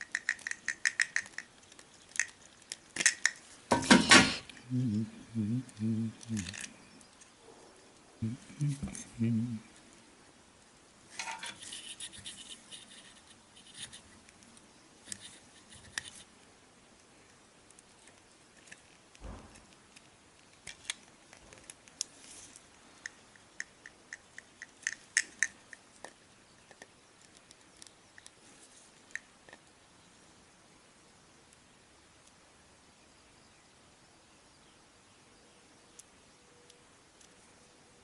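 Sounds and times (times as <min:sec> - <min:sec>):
scratchy rustling: 0:11.4 - 0:14.2, 0:19.9 - 0:22.7.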